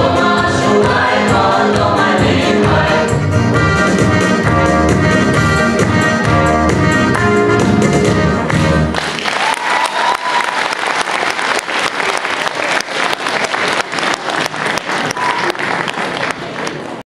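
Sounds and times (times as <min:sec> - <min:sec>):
music: 0:00.0 - 0:09.2
audience applauding: 0:08.5 - 0:17.0.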